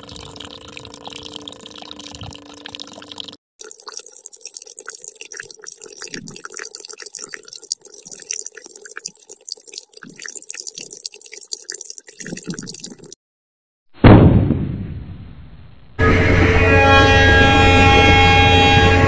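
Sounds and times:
loud boom: 14.0s - 16.6s
loud steady horn-like tone: 16.0s - 19.0s.

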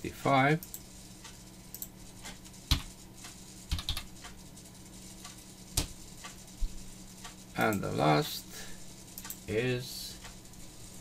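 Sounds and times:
keyboard and mouse clicks: 1.7s - 2.9s, 3.7s - 4.4s, 9.2s - 9.4s.

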